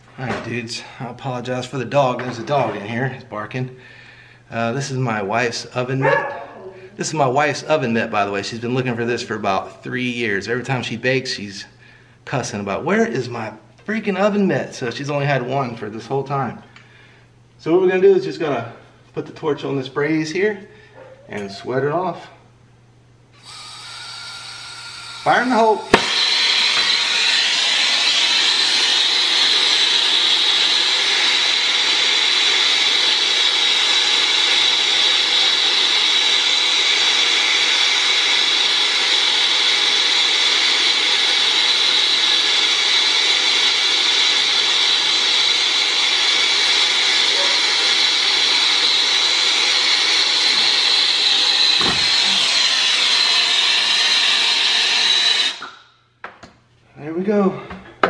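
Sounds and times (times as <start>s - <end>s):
torch flame hissing: 23.4s - 55.8s.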